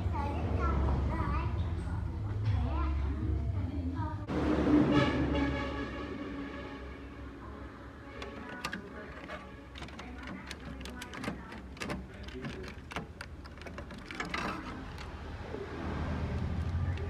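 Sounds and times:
plastic connectors clicking and rattling: 8.2 - 15.3.

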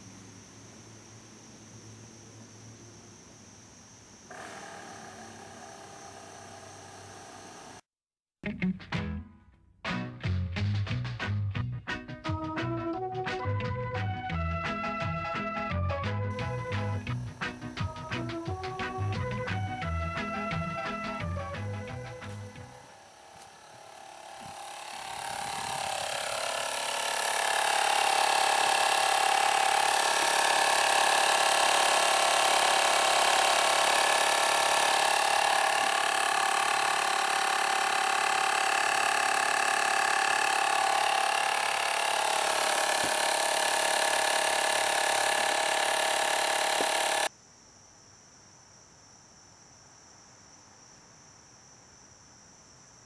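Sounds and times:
faint crickets: 0.0 - 7.8, 16.4 - 43.0, 43.6 - 53.0
air compressor whining and hissing: 4.3 - 7.9, 16.3 - 47.3.

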